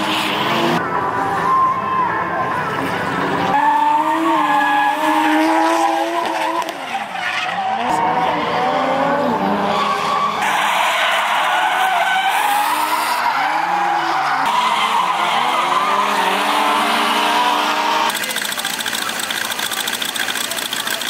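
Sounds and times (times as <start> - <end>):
car engines revving: 0.0 - 21.0
tyres squealing: 9.6 - 21.0
fast mechanical clatter: 18.1 - 21.0.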